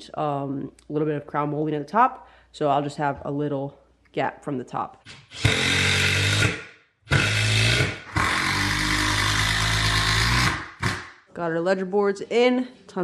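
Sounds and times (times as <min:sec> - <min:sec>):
cordless drill driving screws into wood: 0:05.1 - 0:11.2.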